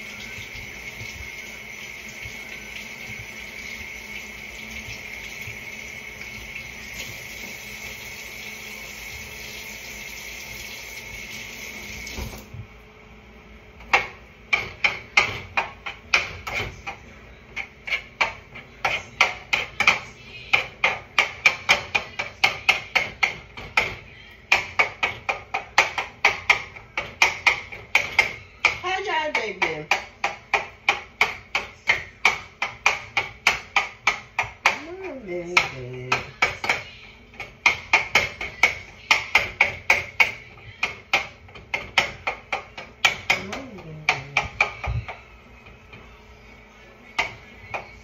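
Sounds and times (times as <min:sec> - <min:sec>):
tap running into sink: 0:00.1 - 0:12.5
utensil knocking in a pot: 0:13.8 - 0:17.0, 0:17.6 - 0:46.1, 0:47.1 - 0:48.0.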